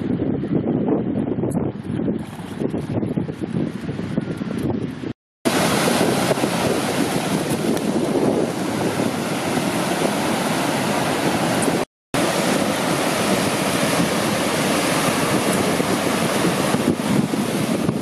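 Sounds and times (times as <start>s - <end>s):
wind on microphone: 0.0s - 18.0s
surf washing up a beach: 5.5s - 18.0s.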